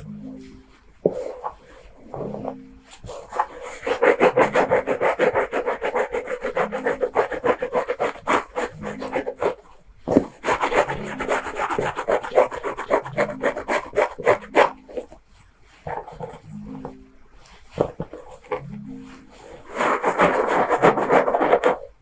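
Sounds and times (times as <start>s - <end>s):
fingernails scratching through hair: 2.5s - 15.2s, 17.7s - 22.0s.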